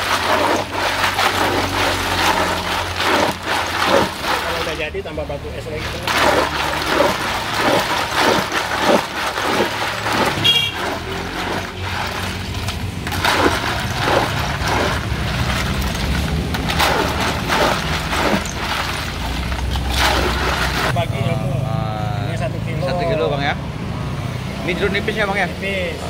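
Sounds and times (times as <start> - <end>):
ice cubes clattering in bucket: 0.0 - 5.0, 5.6 - 20.9.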